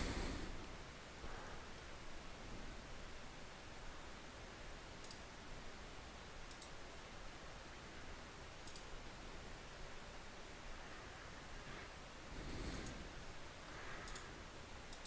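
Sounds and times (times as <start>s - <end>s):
steady low hiss: 0.0s - 15.0s
computer mouse clicking: 5.0s - 5.3s, 6.5s - 6.8s, 8.6s - 9.0s, 12.8s - 13.0s, 14.0s - 14.3s.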